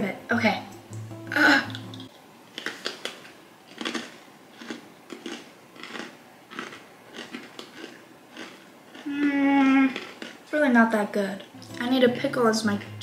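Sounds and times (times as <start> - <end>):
person chewing crunchy cracker: 2.5 - 10.5.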